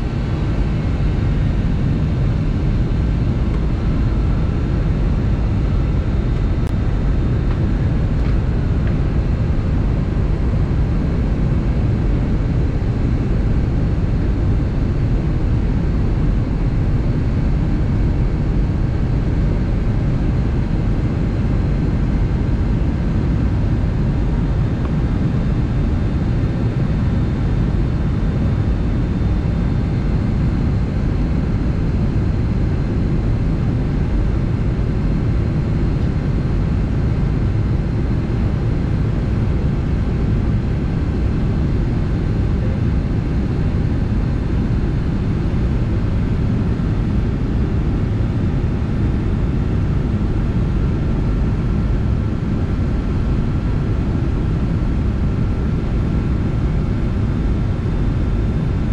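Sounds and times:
faint steady whines: 0:00.0 - 0:58.9
jet engine drone and rushing air: 0:00.0 - 0:58.9.

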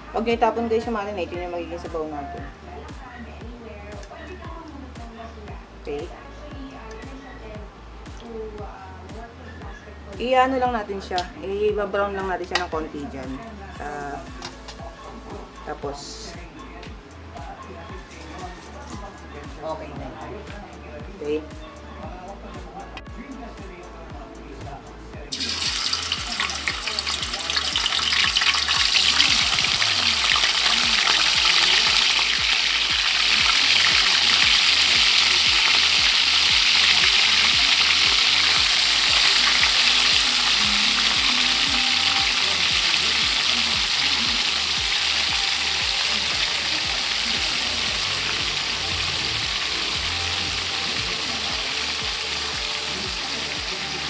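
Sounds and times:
meat sizzling in hot oil: 0:25.3 - 0:54.0.

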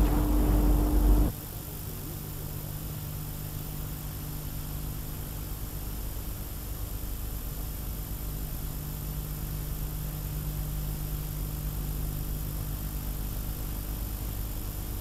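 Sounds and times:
tape hiss: 0:00.0 - 0:01.3
low electrical hum: 0:00.0 - 0:15.0.

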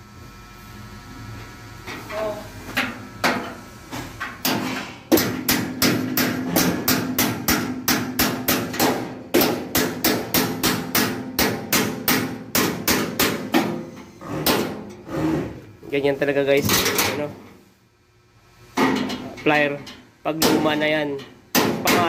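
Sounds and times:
pliers hammering steel panel: 0:04.4 - 0:14.8, 0:20.3 - 0:22.0.

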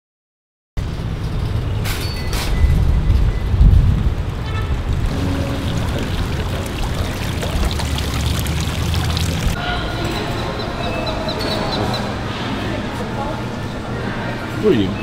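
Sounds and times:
fountain water splashing: 0:05.0 - 0:09.6
steady tones: 0:05.1 - 0:09.6.

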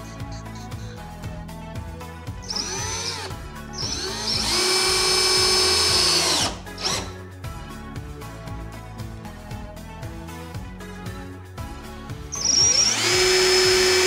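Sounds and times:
background music: 0:00.0 - 0:14.0
cordless drill driving screws: 0:02.5 - 0:07.2, 0:12.4 - 0:14.0.

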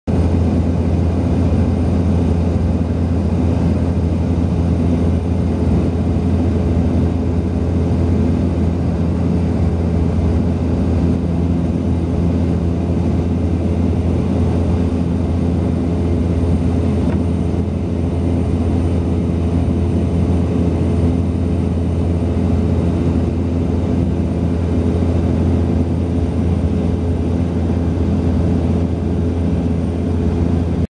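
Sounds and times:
propeller airplane cabin drone: 0:00.1 - 0:30.9.

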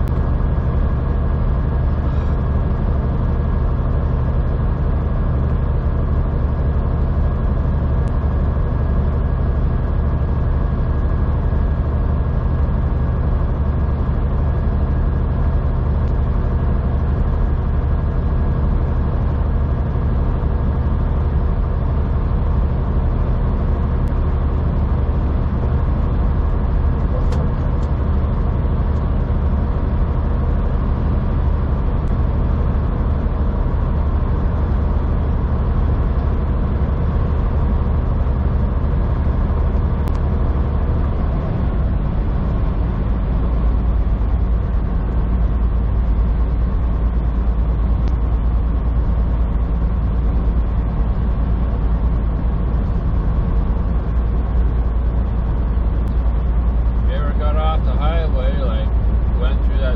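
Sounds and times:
truck diesel engine droning: 0:00.0 - 0:59.9
road noise: 0:13.9 - 0:59.9.

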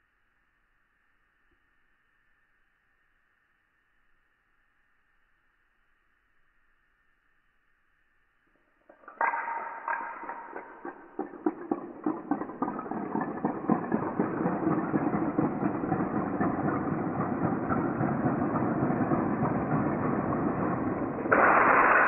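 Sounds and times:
dominoes clattering on tiled floor: 0:08.9 - 0:14.2.

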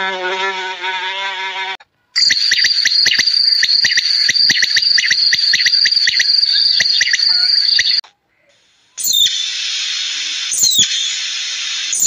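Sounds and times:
shrill insect trill: 0:02.2 - 0:08.0.

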